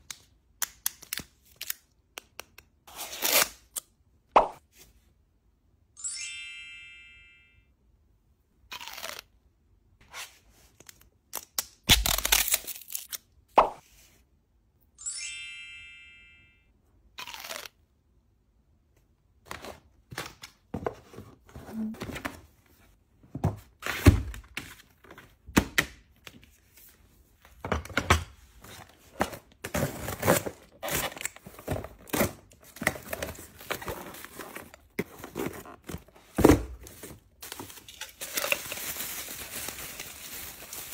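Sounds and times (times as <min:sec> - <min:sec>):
chime sound effect: 0:06.0 - 0:07.7, 0:15.0 - 0:16.7
packaging crackling and tearing: 0:11.4 - 0:13.2, 0:37.4 - 0:40.9.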